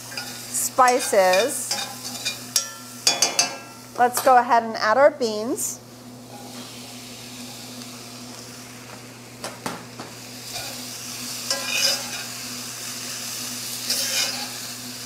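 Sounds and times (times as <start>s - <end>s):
onions sizzling: 0.0s - 15.0s
metal spoon stirring in pot: 0.1s - 3.6s, 11.5s - 12.3s, 13.9s - 14.6s.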